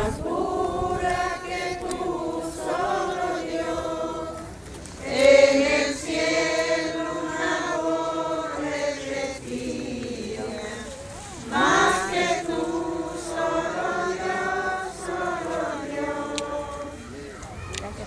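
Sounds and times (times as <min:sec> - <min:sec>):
crowd singing a hymn: 0:00.0 - 0:18.0.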